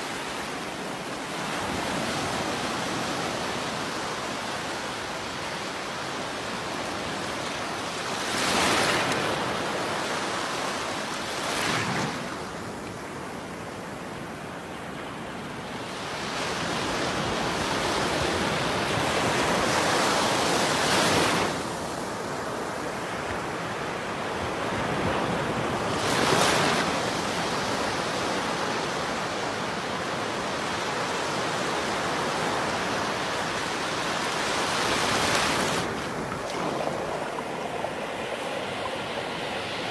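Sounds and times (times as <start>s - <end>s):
surf washing on beach: 0.0s - 39.9s
wave crashing: 34.8s - 39.9s.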